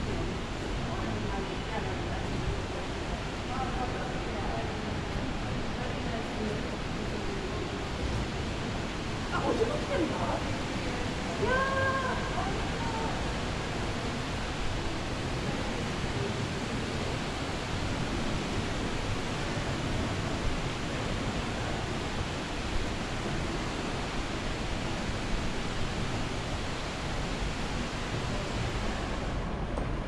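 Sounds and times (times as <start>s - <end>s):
rushing street background noise: 0.0s - 30.0s.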